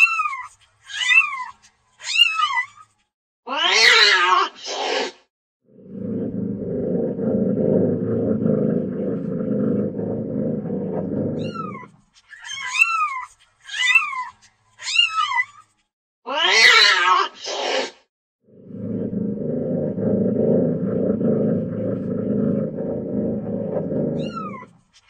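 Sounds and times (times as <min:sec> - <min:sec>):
cat purring: 0:05.9 - 0:11.9, 0:18.7 - 0:24.7
cat chirping: 0:11.4 - 0:13.2, 0:24.2 - 0:24.7
cat meowing: 0:24.2 - 0:24.7.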